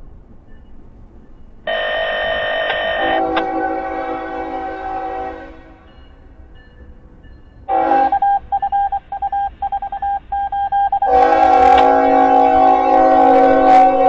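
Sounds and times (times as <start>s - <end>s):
locomotive air horn: 1.7s - 5.9s, 7.7s - 8.2s, 11.1s - 14.0s.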